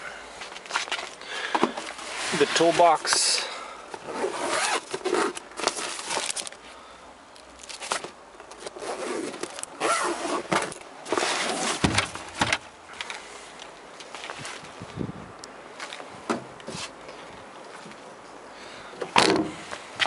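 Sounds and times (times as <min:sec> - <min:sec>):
zipper on fabric bag: 0:04.1 - 0:05.3.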